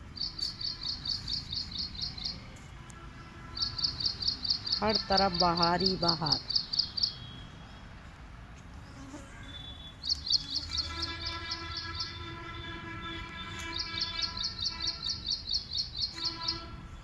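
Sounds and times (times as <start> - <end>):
small bird chirping: 0.0 - 2.5, 3.6 - 7.7, 9.5 - 12.2, 13.4 - 16.7.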